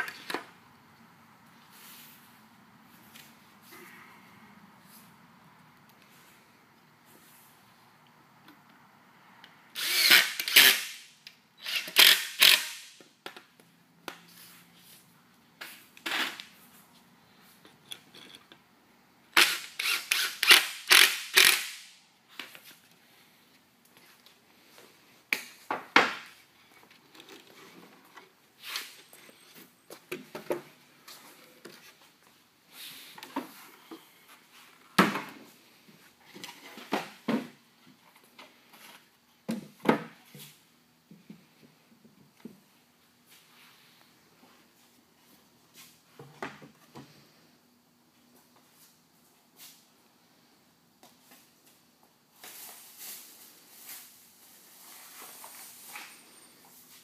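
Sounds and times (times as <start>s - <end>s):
cordless drill driving screws: 9.8s - 10.9s, 11.6s - 12.8s, 19.4s - 21.8s.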